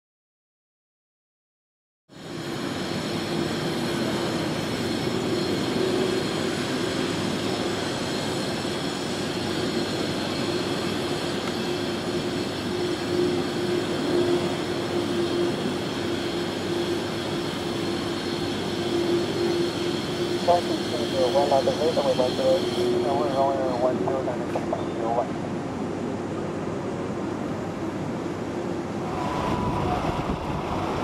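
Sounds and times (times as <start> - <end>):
jet engines running: 2.1 - 31.0.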